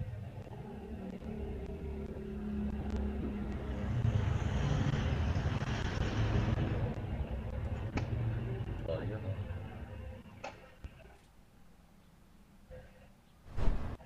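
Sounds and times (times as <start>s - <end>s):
vehicle engine rumbling: 0.0s - 11.1s.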